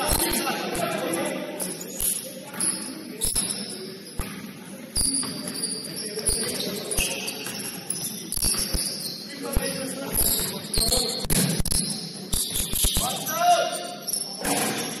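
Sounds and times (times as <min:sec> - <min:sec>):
sneakers squeaking: 0:00.0 - 0:15.0
basketball bouncing: 0:02.0 - 0:05.6, 0:06.3 - 0:13.0.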